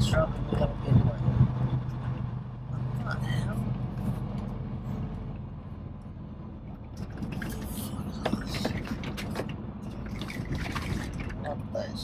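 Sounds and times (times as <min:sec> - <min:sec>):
truck engine running: 0:00.0 - 0:12.0
cab clicks and creaks: 0:06.7 - 0:11.6.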